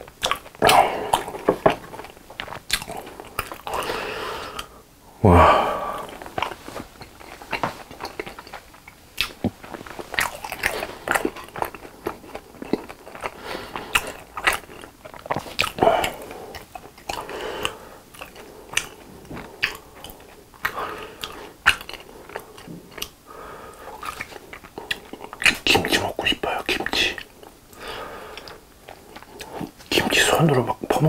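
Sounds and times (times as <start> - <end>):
close-up chewing: 0.0 - 4.8, 5.9 - 31.0
wet mouth clicks and smacks: 19.6 - 22.0.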